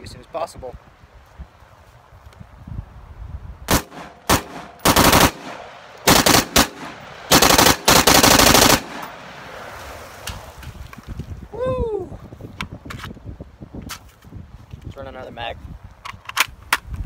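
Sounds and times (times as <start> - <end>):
rifle shots: 3.7 - 9.4.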